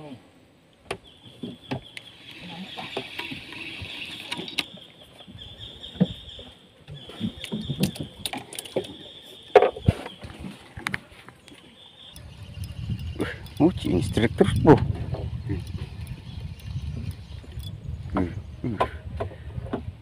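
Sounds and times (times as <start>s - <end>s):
fishing tackle knocks and clicks: 7.4s - 9.0s
steady high buzz: 11.1s - 18.1s.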